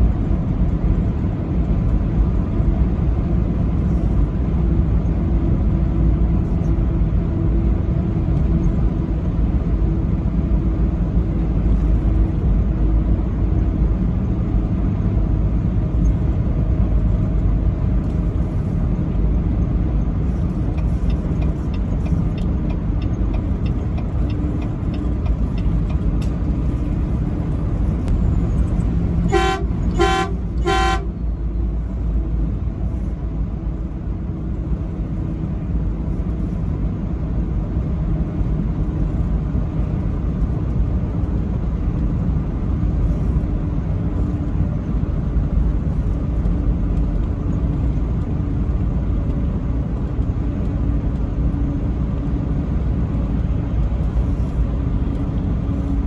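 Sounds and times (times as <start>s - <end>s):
truck engine and tyres droning: 0.0s - 56.0s
truck horn blasts: 29.2s - 31.4s.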